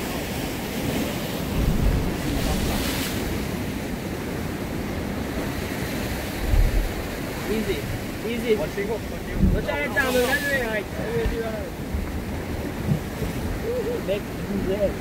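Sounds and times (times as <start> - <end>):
sea waves washing over rocks: 0.0 - 15.0
wind buffeting microphone: 0.2 - 15.0.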